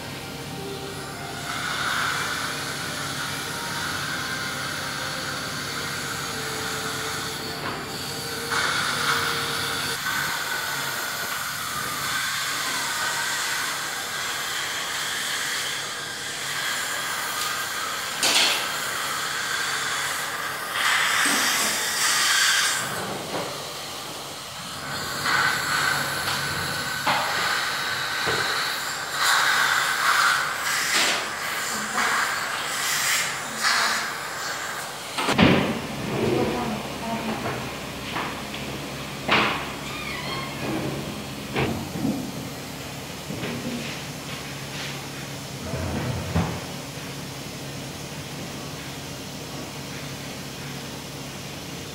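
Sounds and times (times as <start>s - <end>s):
suction hose hissing: 0.6s - 35.6s.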